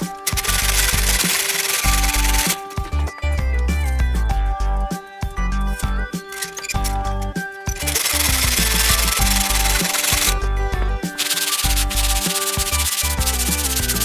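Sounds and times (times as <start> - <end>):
background music: 0.0 - 14.0
sanding block rasping on wood: 7.8 - 10.4, 11.2 - 14.0.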